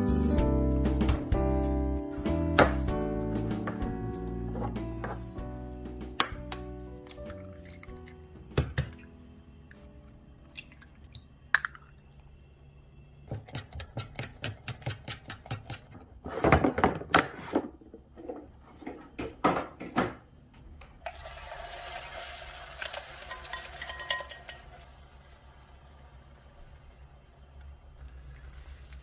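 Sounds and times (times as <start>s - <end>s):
chopsticks clattering against steel cup: 23.4s - 24.7s.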